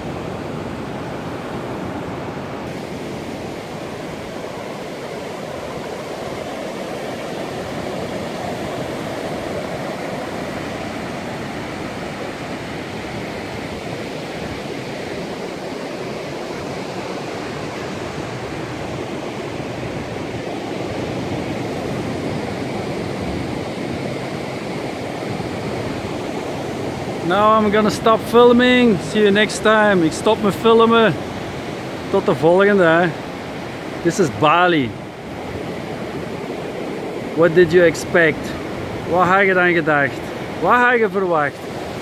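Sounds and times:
surf breaking on rocky shore: 0:00.0 - 0:42.0.

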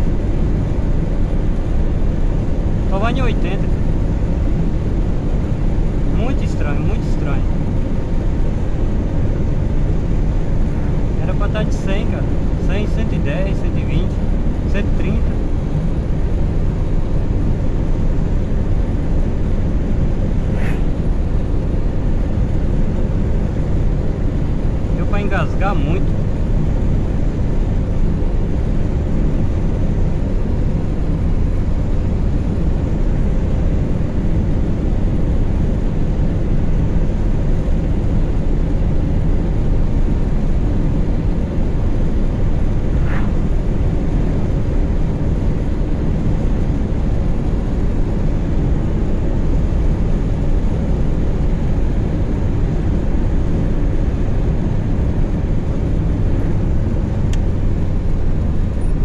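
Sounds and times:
car engine running: 0:33.9 - 0:59.0.

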